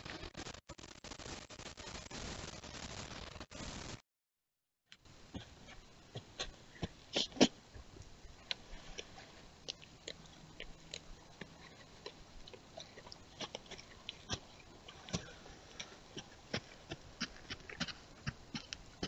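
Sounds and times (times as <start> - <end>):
deer moving and feeding: 5.0 - 19.0.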